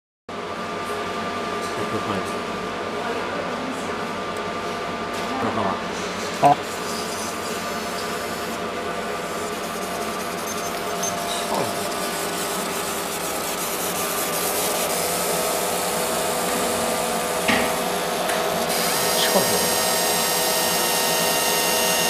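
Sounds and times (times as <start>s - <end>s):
laser marking machine whirring: 6.4s - 22.0s.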